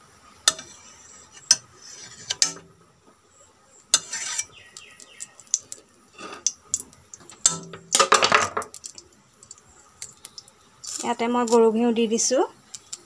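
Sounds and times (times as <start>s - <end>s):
spoon scraping a wok: 0.4s - 2.7s, 3.9s - 5.5s.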